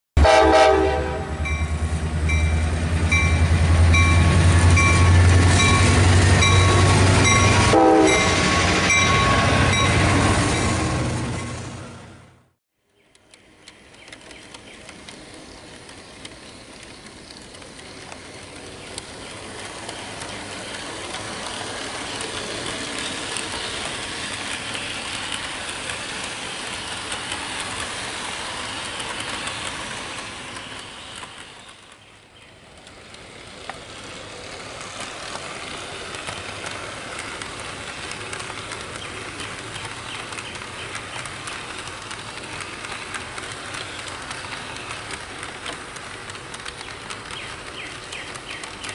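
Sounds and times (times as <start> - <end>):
model train wheels rattling: 13.2 - 48.9.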